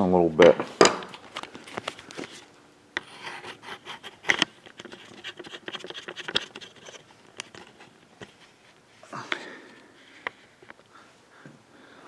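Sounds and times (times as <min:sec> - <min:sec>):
camera handling noises: 0:03.9 - 0:08.5.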